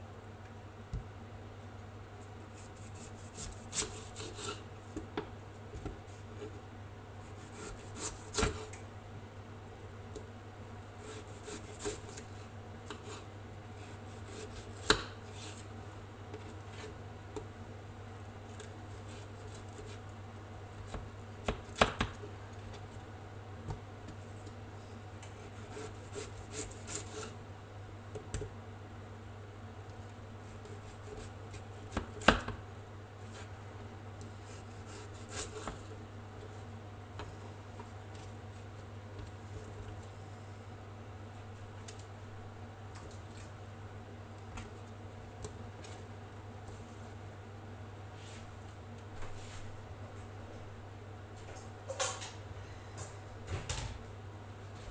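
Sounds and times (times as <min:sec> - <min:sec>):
knife slicing potatoes: 0:02.5 - 0:04.7, 0:07.2 - 0:08.7, 0:11.0 - 0:12.3, 0:12.9 - 0:15.7, 0:25.2 - 0:27.4, 0:34.4 - 0:35.8.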